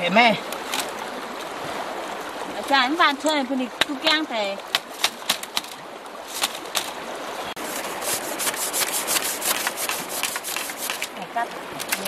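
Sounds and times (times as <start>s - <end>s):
bamboo strips scraping and clicking: 7.6s - 11.2s, 11.8s - 12.0s.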